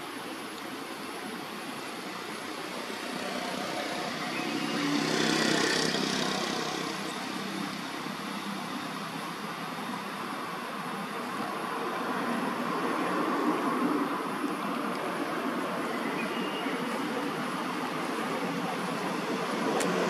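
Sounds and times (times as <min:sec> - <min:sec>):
vehicle passing by: 0:02.1 - 0:08.8.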